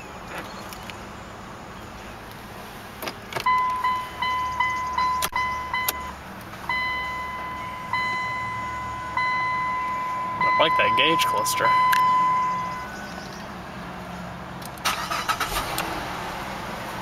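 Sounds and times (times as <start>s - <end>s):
car warning chime beeping: 3.5s - 13.1s.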